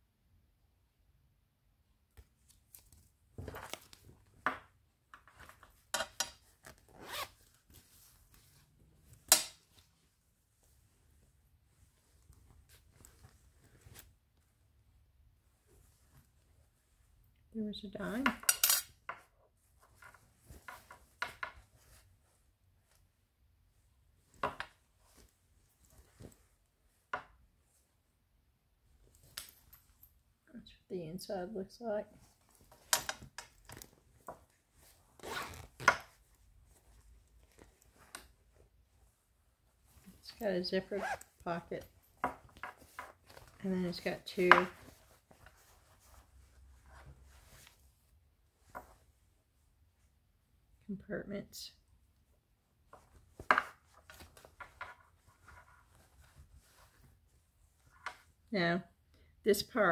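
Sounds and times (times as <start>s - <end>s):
fabric handbag rustling: 33.5s - 49.1s.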